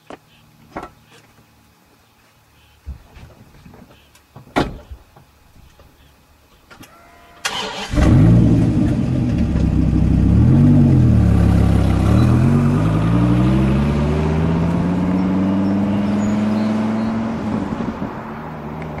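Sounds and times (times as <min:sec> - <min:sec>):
sports car engine accelerating: 0:07.9 - 0:19.0.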